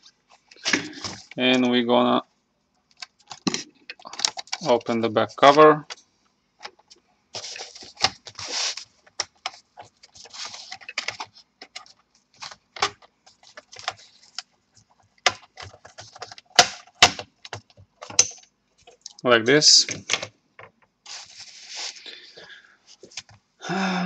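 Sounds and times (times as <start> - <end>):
plastic scraping on plastic: 6.6 - 18.2.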